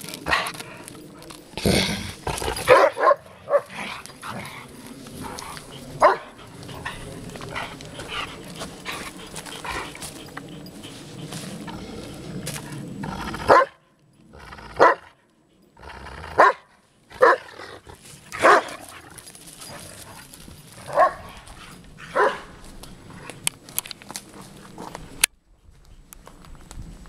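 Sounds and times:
large dog barking: 2.3 - 4.5, 5.2 - 10.0, 13.4 - 13.8, 14.6 - 15.2, 16.3 - 19.1, 20.8 - 22.6.

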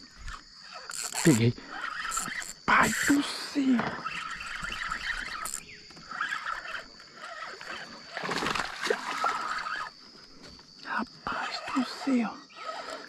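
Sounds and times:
fishing reel noise: 0.0 - 10.0, 11.4 - 13.0
fish splashing: 6.2 - 10.0.

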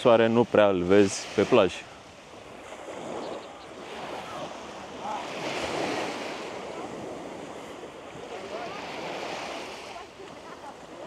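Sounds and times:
sea waves washing onto beach: 0.0 - 11.0.

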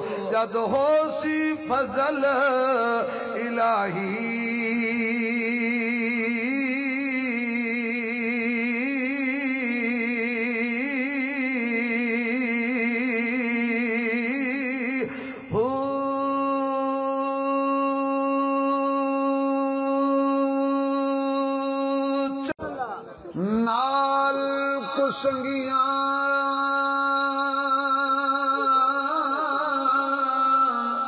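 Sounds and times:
man singing long notes: 0.0 - 22.6, 23.4 - 31.0.

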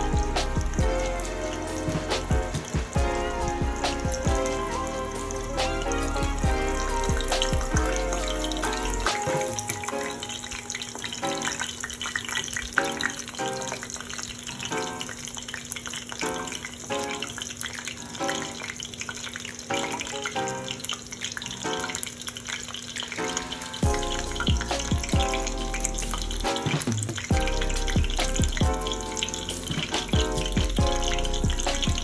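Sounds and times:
background music with held chords: 0.0 - 11.9, 23.2 - 32.0
cutlet deep-frying in oil: 0.0 - 32.0.

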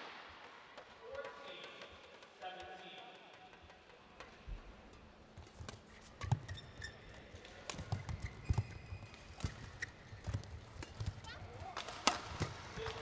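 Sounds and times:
shoes squeaking on court: 5.3 - 13.0
racket hitting shuttlecock: 7.4 - 13.0.

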